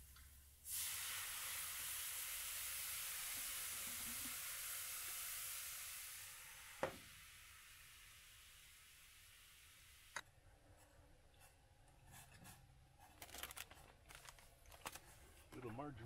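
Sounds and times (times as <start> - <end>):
water hissing in hot pan: 0.0 - 10.2.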